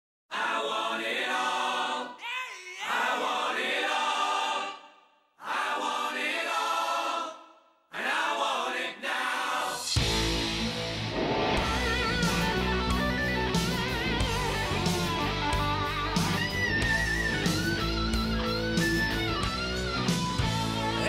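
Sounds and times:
group singing unaccompanied: 0.3s - 2.2s, 2.8s - 10.0s
rock band with electric guitar: 10.0s - 21.0s.

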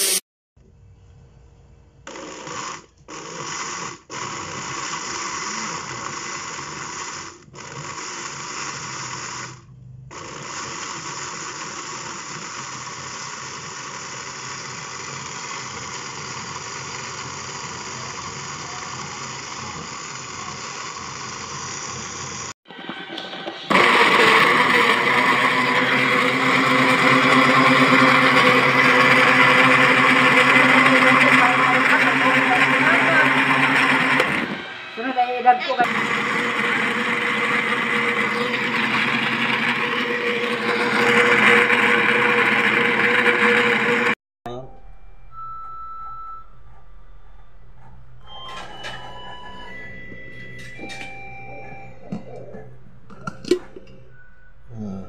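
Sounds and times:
blender motor blending liquid: 2.1s - 22.6s, 23.2s - 44.2s.

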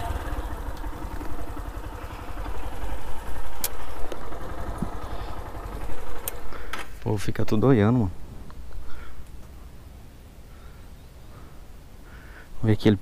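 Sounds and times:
motorcycle engine running: 0.0s - 8.3s
sharp clicks: 3.6s - 4.3s.

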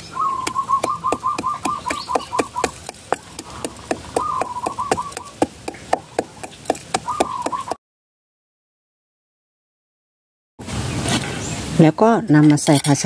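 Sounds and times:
rapid high chirps: 0.3s - 7.8s
pestle pounding in a mortar: 0.4s - 7.8s.

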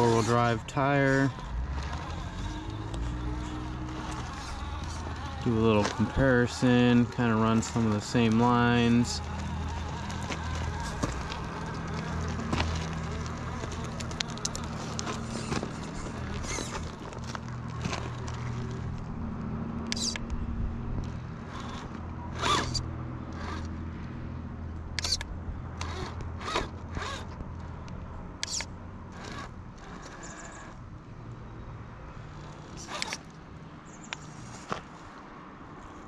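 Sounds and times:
electric motor humming: 0.0s - 19.0s, 19.9s - 20.2s, 21.1s - 23.7s, 25.0s - 27.4s, 28.4s - 30.8s, 32.3s - 33.3s
tires and chassis scraping and clicking: 0.0s - 36.0s.

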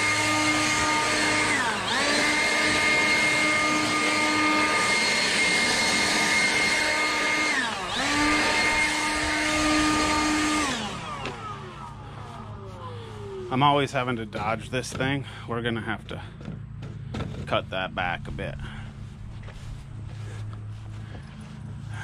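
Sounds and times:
cordless tool motor whining: 0.0s - 15.4s.

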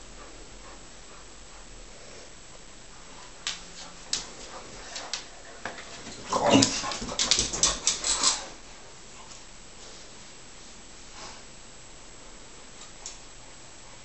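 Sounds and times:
dogs scuffling: 3.0s - 10.1s.

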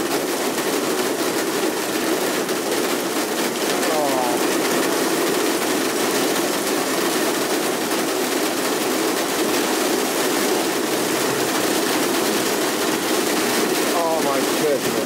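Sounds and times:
torrential rain pouring: 0.0s - 15.0s.

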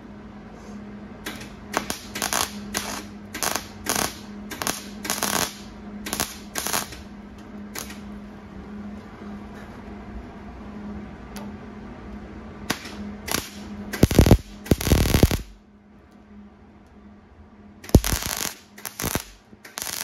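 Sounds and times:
steady low hum: 0.0s - 20.0s
welding arc bursts: 1.7s - 7.0s, 12.7s - 15.6s, 17.9s - 20.0s.

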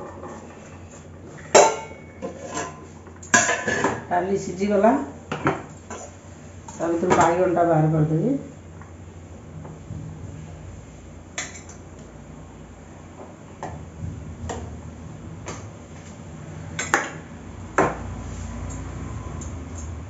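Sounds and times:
low steady hum: 0.0s - 20.0s
steel utensils clinking on pots: 1.4s - 4.0s.

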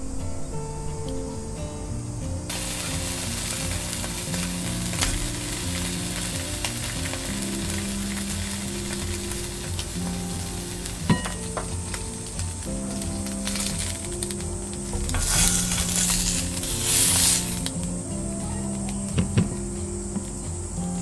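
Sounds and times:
chicken sizzling in oil: 2.5s - 18.6s.

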